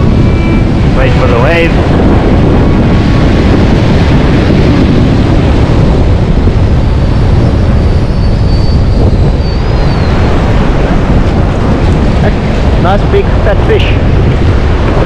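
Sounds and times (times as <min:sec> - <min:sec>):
wind buffeting microphone: 0:00.0 - 0:15.0
surf washing up beach: 0:10.1 - 0:15.0.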